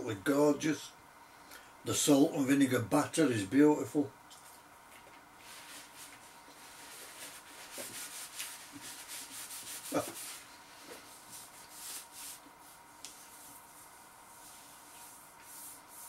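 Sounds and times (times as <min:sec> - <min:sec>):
paper napkin rustling: 0:04.4 - 0:16.0.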